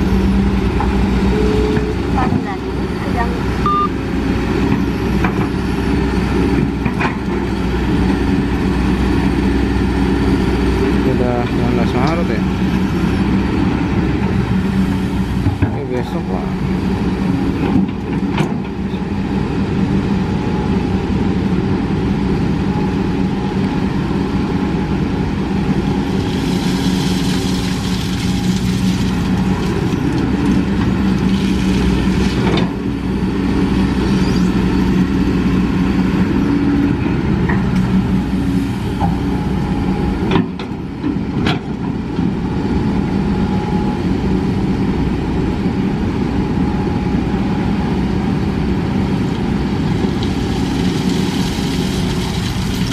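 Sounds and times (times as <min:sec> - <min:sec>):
excavator diesel engine running: 0:00.0 - 0:52.9.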